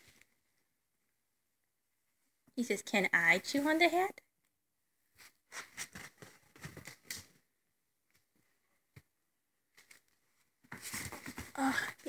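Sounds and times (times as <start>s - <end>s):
straw hat rustling and crackling: 9.7s - 11.9s.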